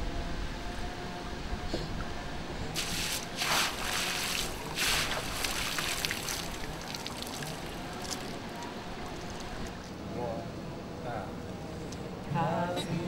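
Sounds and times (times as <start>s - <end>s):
net splashing in water: 2.8s - 8.4s
water dripping and trickling: 2.8s - 8.4s.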